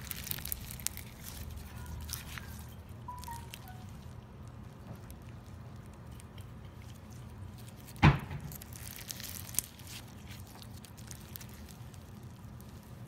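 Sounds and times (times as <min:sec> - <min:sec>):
slime popping: 0:00.0 - 0:03.9, 0:07.8 - 0:12.7
slime crackling and squelching: 0:00.0 - 0:13.0.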